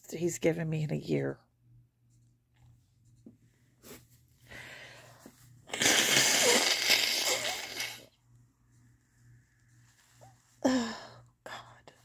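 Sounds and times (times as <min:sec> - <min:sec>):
woman blowing her nose: 0:05.7 - 0:08.1.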